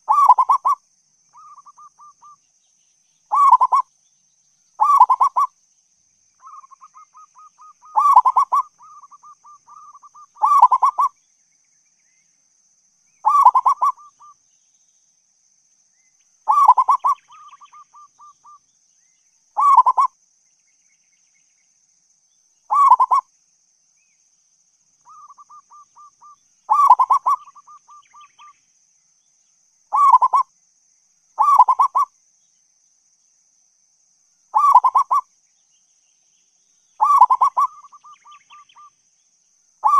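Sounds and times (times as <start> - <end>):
dove cooing: 0.0 - 0.8, 3.3 - 3.8, 4.8 - 5.5, 6.5 - 11.1, 13.2 - 14.3, 16.5 - 18.4, 19.6 - 20.1, 22.7 - 23.2, 25.1 - 28.3, 29.9 - 30.4, 31.4 - 32.1, 34.6 - 35.2, 37.0 - 38.9.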